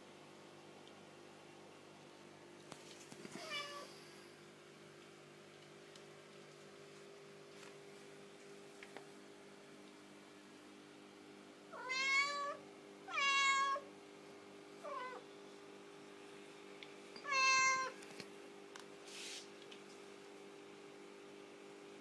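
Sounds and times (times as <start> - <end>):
cat meowing: 3.4 - 3.9, 11.8 - 13.8, 14.8 - 15.2, 17.2 - 18.0.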